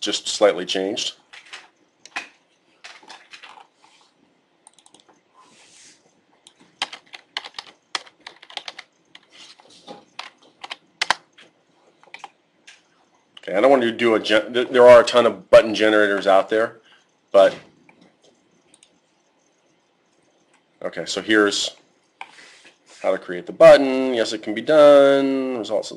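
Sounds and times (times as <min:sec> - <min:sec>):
keyboard typing clicks: 0:04.6 - 0:05.2, 0:06.4 - 0:09.3, 0:10.0 - 0:12.9, 0:17.8 - 0:19.0.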